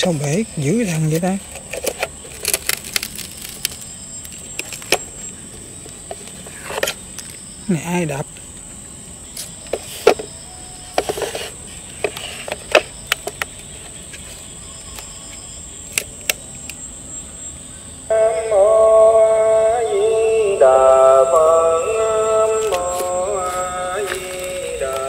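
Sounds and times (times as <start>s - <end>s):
plastic clicks and knocks: 12.0s - 13.7s
chant from small speaker: 18.1s - 25.0s.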